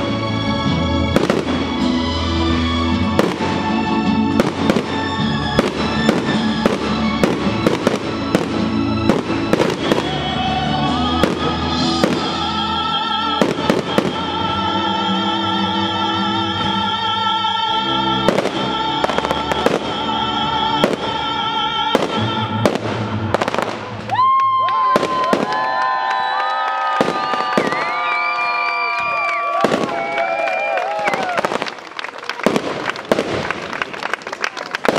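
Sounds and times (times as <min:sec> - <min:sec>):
music with long held notes: 0:00.0 - 0:24.1
firework bursts and crackles: 0:01.1 - 0:01.9, 0:03.0 - 0:10.4, 0:21.9 - 0:34.9.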